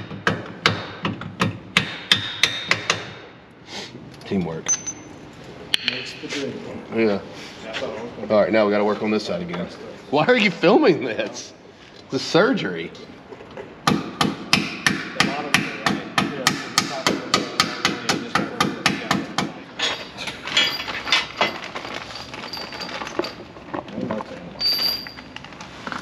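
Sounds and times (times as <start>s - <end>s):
handling noise: 19.8s - 26.0s.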